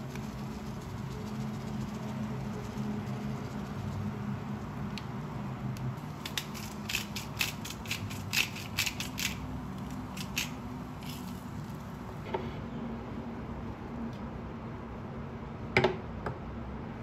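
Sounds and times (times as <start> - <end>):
spice grinder crunching clicks: 5.8 - 11.4.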